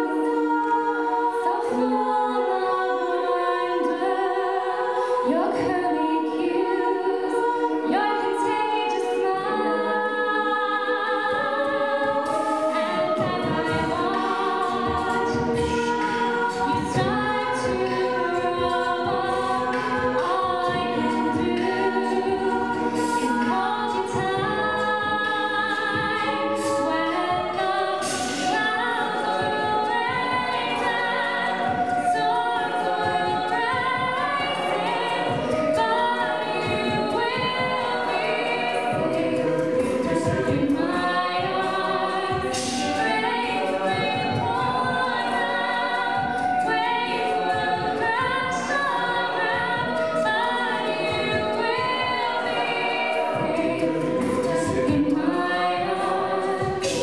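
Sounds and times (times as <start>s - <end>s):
backing vocal harmonies: 0.0s - 57.0s
female lead singing: 0.0s - 57.0s
vocal percussion hits: 12.0s - 57.0s.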